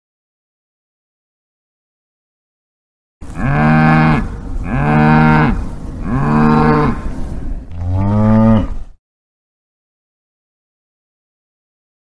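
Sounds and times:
cow mooing: 3.3 - 7.1, 7.7 - 8.9.

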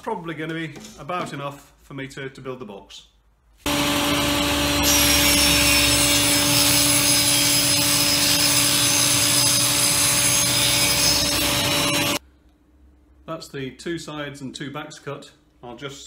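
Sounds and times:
table saw cutting plywood: 3.7 - 12.2.

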